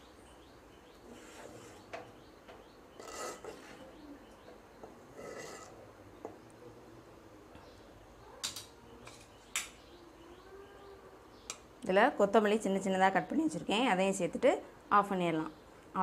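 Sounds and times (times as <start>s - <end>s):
metal ladle scraping pot: 5.1s - 5.8s.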